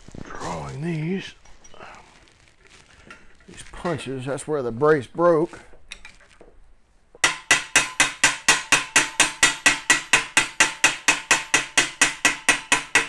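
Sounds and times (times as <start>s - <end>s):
mallet tapping brass tube: 7.2s - 13.0s.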